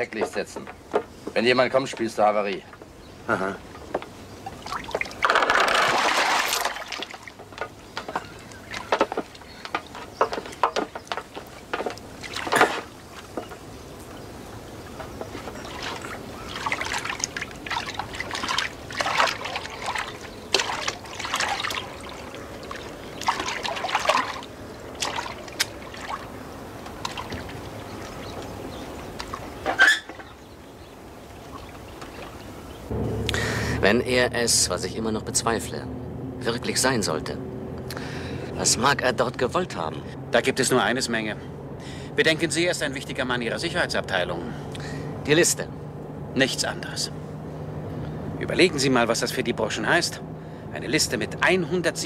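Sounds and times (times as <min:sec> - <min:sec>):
oars splashing in water: 0:00.0 - 0:32.9
water trickling and sloshing: 0:00.0 - 0:32.9.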